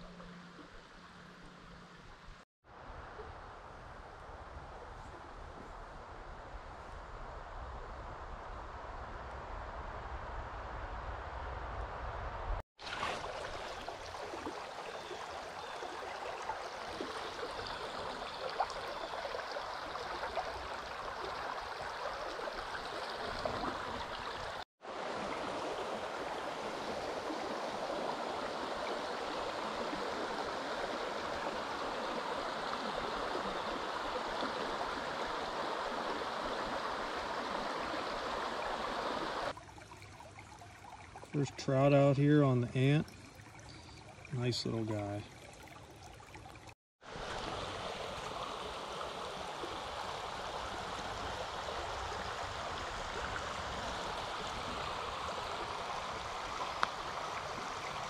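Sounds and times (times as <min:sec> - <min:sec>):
stream running over stones: 0:12.8 - 0:58.0.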